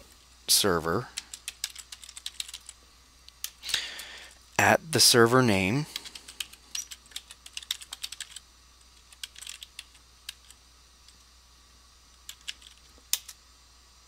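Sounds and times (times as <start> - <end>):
keyboard typing: 1.1 - 2.8, 5.9 - 8.4, 9.0 - 10.6, 12.2 - 13.3.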